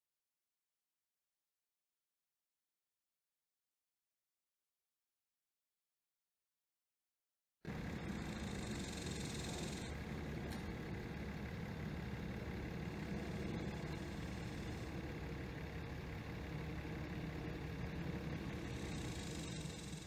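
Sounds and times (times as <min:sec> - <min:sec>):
vehicle engine idling: 0:07.7 - 0:20.0
high hiss: 0:18.4 - 0:20.0.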